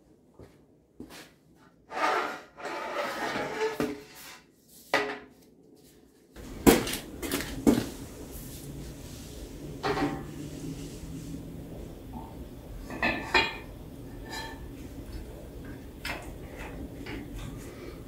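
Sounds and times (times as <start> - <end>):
metal scraping and rattling: 1.9 - 4.4.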